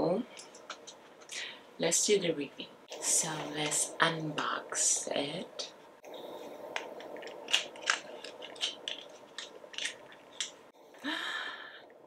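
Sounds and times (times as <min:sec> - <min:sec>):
cardboard box crinkling open: 0:07.0 - 0:10.4.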